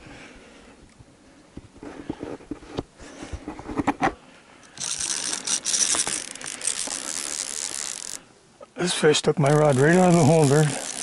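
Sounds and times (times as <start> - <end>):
fishing reel drag clicking and buzzing: 4.7 - 8.2, 9.4 - 11.0.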